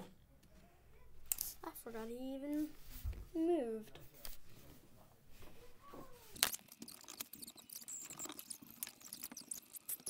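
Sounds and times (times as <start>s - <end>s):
pet claws clicking and scratching: 6.3s - 10.0s.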